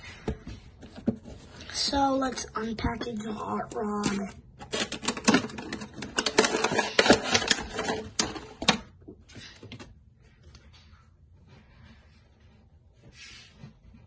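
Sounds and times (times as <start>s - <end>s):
cardboard and plastic packaging crackling: 4.6s - 9.6s
packaging rustle: 4.7s - 8.6s.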